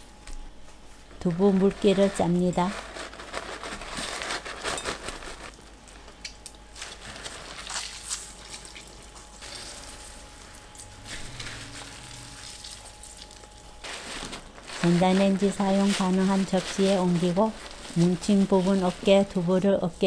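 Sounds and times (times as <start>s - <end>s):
wet paper towel rustling: 6.7s - 9.9s, 11.0s - 20.0s.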